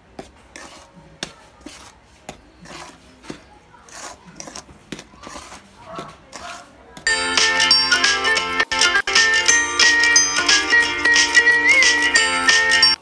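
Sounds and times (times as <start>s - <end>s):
spatula scraping a metal bowl: 0.2s - 6.8s.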